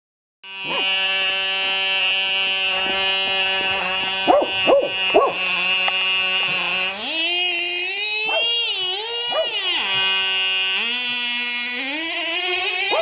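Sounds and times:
toy car motor running: 0.4 - 13.0
dog yelping barks: 0.7 - 0.9, 4.3 - 5.5, 8.2 - 9.7.

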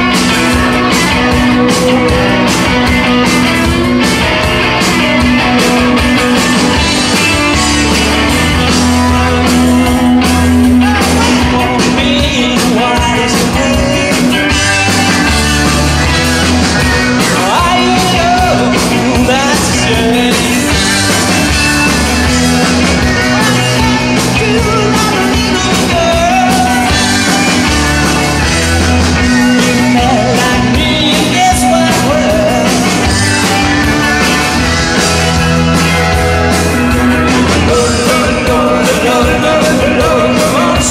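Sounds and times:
man singing lead vocals: 0.0 - 3.3, 6.4 - 16.2, 16.8 - 21.9, 23.0 - 33.9, 37.2 - 40.9
live rock band playing: 0.0 - 40.9.

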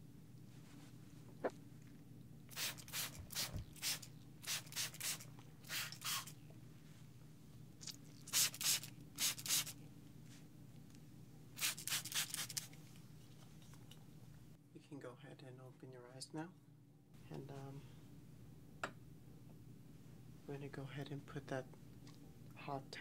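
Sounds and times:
spray bottle spritzing: 2.5 - 6.3, 8.3 - 9.8, 11.6 - 12.7.

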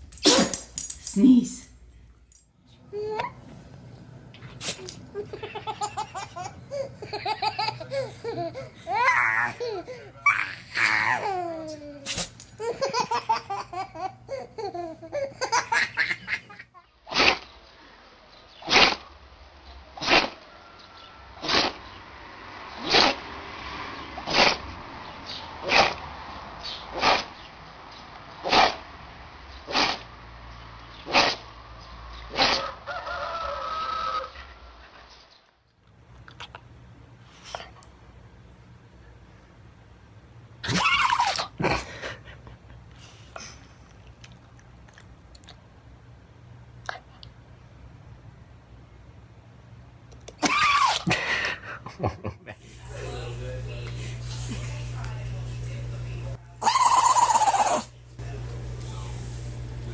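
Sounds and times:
dog sneeze: 0.2 - 0.7, 4.5 - 5.0, 12.0 - 12.5, 17.1 - 17.4, 18.6 - 19.0, 20.0 - 20.4, 21.4 - 21.8, 22.8 - 23.2, 24.3 - 24.6, 25.6 - 26.0, 27.0 - 27.3, 28.4 - 28.8, 29.7 - 30.0, 31.1 - 31.4, 32.3 - 32.6
baby laughing: 4.7 - 16.9, 40.6 - 41.8
long pitched call: 56.6 - 57.9.

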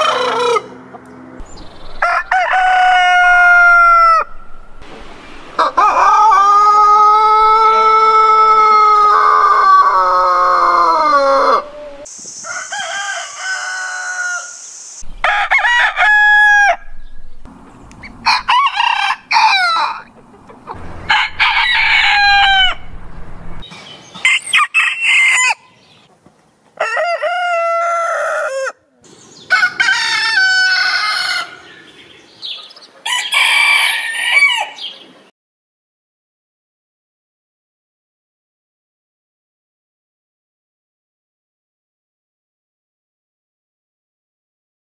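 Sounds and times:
roosters crowing: 0.0 - 26.0, 26.8 - 35.0.

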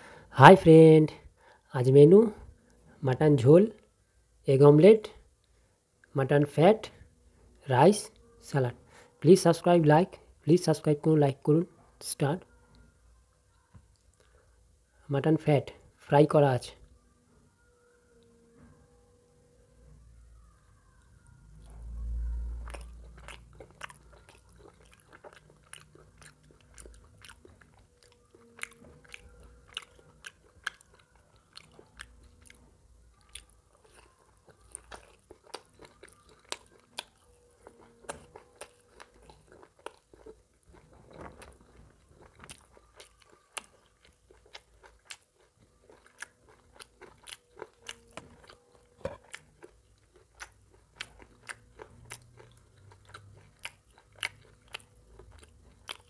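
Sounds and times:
man chewing food: 21.6 - 56.0.

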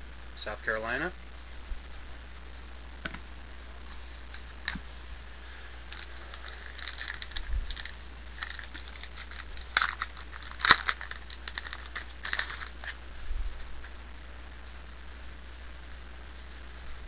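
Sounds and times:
trading cards clicking and rustling: 5.9 - 13.0.

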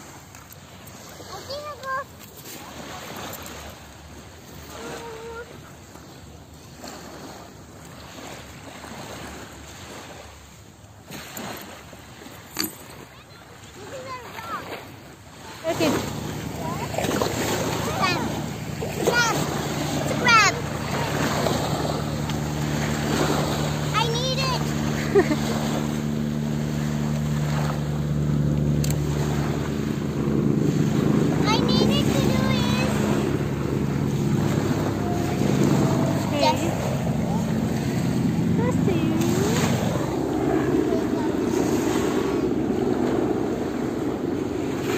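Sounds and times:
surf: 0.0 - 44.9
wind: 0.0 - 44.9
low engine hum: 13.8 - 44.9.

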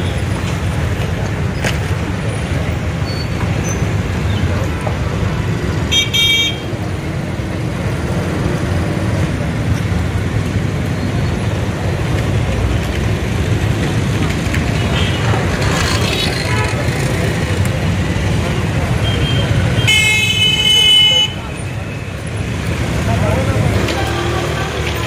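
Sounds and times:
street traffic: 0.0 - 25.0
vehicle horn tooting: 5.9 - 6.7.

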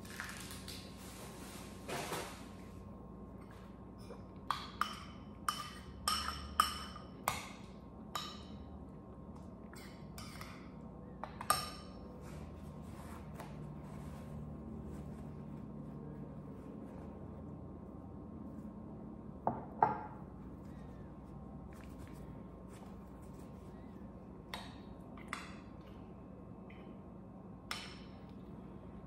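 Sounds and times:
metal spoon clinking on ceramic bowl: 4.5 - 7.1.

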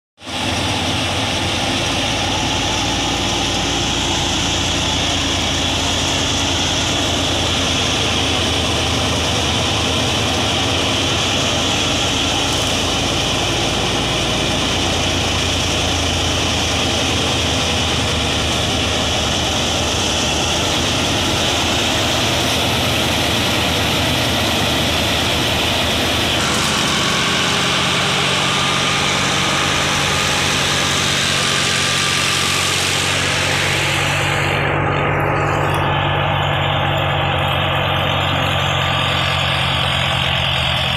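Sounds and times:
threshing machine din: 0.2 - 40.9
tractor diesel engine: 0.2 - 40.9.

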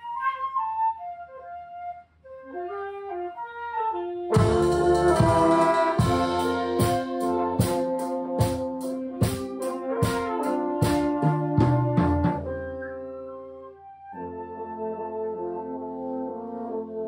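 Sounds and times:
flute melody: 0.0 - 17.0
wind band with brass playing: 0.0 - 17.0
drum hits: 4.4 - 12.5.

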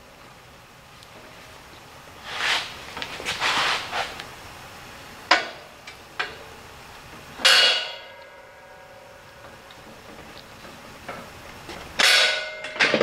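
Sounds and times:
metal scraping and sliding: 2.2 - 4.2
loud metal clank: 7.4 - 8.2, 12.0 - 13.0.

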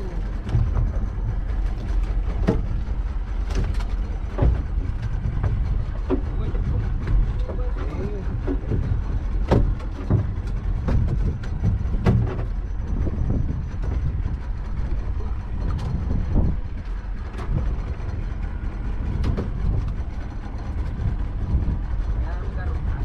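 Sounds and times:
wind and water rumble: 0.0 - 23.0
knocks on boat deck: 0.4 - 14.2, 18.8 - 21.8.

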